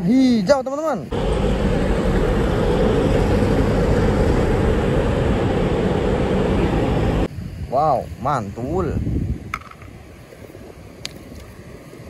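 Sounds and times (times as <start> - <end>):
bus driving past: 1.1 - 7.3
cars driving past: 1.1 - 7.3
motorbike driving past: 1.1 - 7.3.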